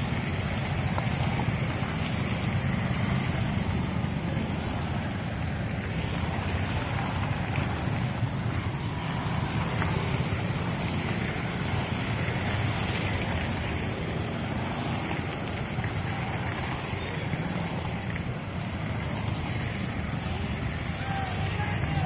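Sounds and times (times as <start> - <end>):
motorcycles and scooters running: 0.0 - 22.0
wind buffeting microphone: 0.0 - 22.0.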